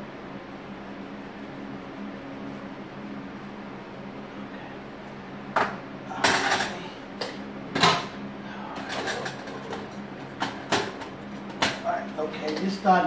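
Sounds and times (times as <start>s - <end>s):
steady low hum: 0.0s - 13.0s
pots and pans clattering: 5.6s - 11.8s.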